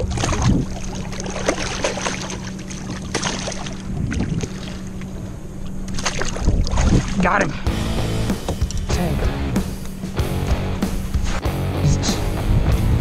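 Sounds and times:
water: 0:00.0 - 0:07.7
wind: 0:00.0 - 0:11.5
boat motor hum: 0:00.0 - 0:13.0.

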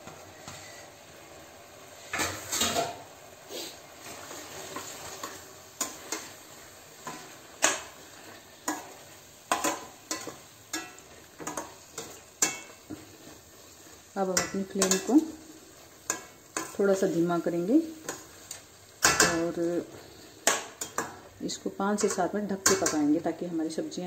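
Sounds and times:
faint sizzle: 0:00.0 - 0:24.0.

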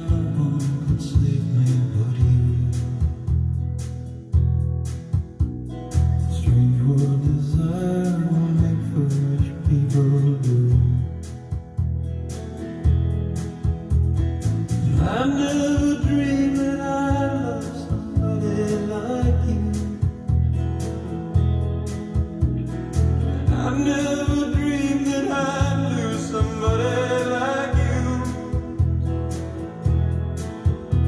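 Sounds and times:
man singing: 0:00.0 - 0:03.4, 0:06.3 - 0:11.3, 0:14.8 - 0:20.4, 0:23.2 - 0:29.8
bass notes: 0:00.0 - 0:31.0
guitar: 0:00.0 - 0:31.0.

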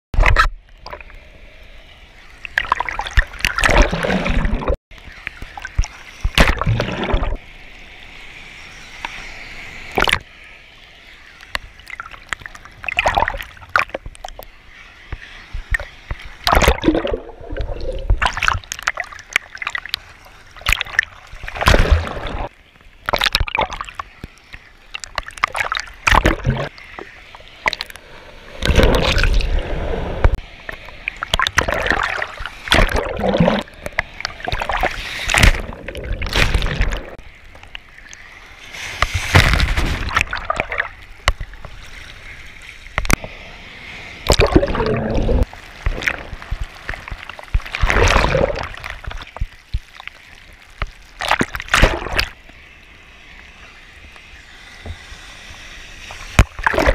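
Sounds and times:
seawater sloshing and splashing: 0:02.4 - 0:04.8, 0:15.6 - 0:24.1, 0:24.9 - 0:43.2, 0:44.2 - 0:52.4, 0:56.2 - 0:56.9.

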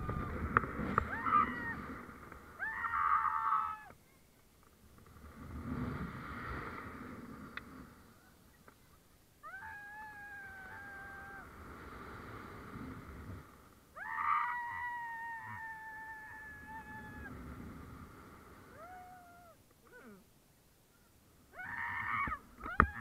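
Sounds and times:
wind rushing over microphone: 0:00.0 - 0:03.0.

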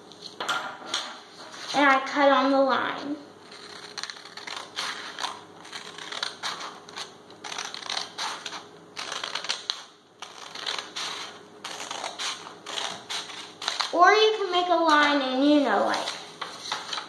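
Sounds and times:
scissors snipping paper: 0:03.5 - 0:14.0.

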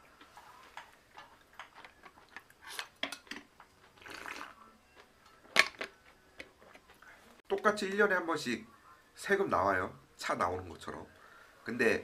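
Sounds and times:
chewing: 0:00.2 - 0:05.1
drinking from a bowl: 0:00.4 - 0:05.1.

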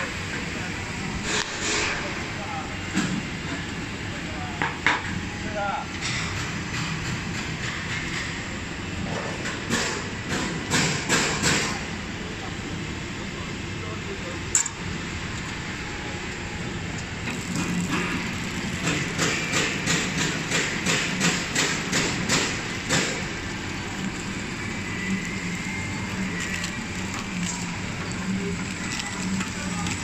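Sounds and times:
wrapping machine running: 0:15.6 - 0:30.0
rhythmic mechanical clatter: 0:17.3 - 0:30.0.

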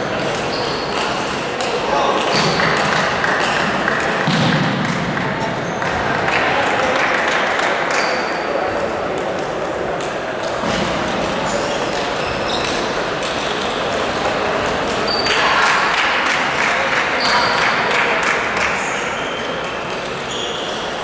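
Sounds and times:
short high squeaks: 0:00.4 - 0:01.0, 0:20.2 - 0:21.0.

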